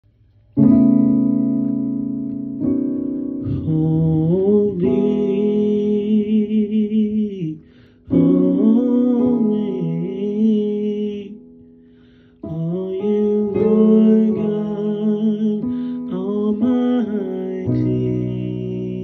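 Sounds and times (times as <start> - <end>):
held accompanying chords: 0.0 - 19.0
man singing wordless notes: 3.4 - 11.7, 12.4 - 19.0.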